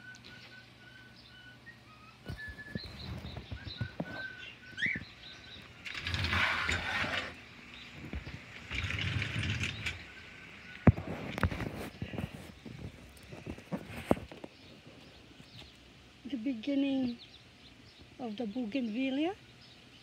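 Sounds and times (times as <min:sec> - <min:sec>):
small bird chirping: 0:00.0 - 0:20.0
sliding screen door scraping: 0:02.6 - 0:14.5.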